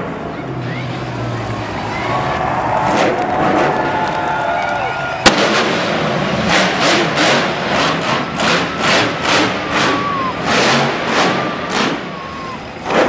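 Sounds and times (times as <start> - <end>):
sharp bang: 5.2 - 6.1.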